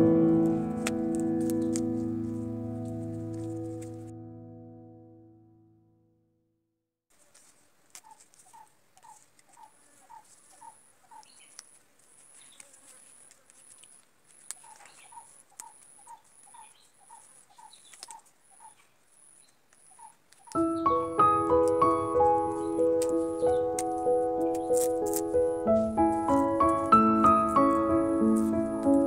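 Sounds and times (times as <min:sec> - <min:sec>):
music: 0:00.0 - 0:06.3, 0:20.6 - 0:29.0
rustling of leaf strips: 0:00.2 - 0:04.1, 0:07.1 - 0:29.0.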